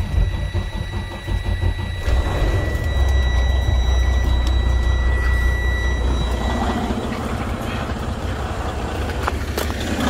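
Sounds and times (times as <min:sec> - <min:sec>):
high-pitched warning buzzer: 0:00.0 - 0:07.7
diesel engine rumble: 0:00.0 - 0:10.0.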